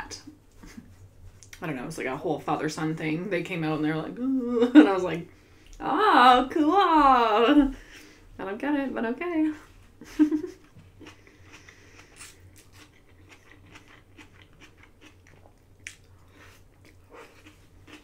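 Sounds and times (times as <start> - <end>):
chewing mouth clicks: 11.0 - 16.1.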